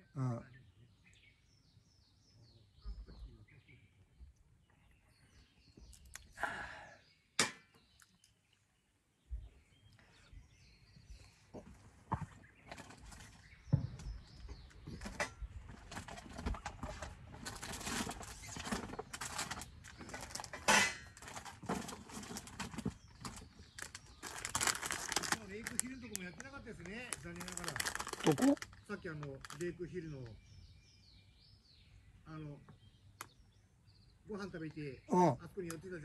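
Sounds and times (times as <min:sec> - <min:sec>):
plastic packaging crinkling: 0:17.4 - 0:20.5, 0:21.2 - 0:29.7.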